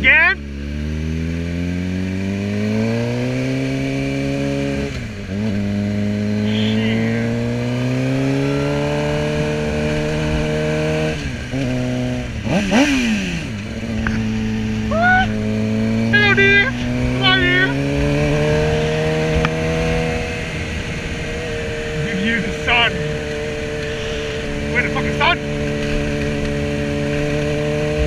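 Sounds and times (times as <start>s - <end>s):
motorcycle engine revving through gears: 0.0s - 28.0s.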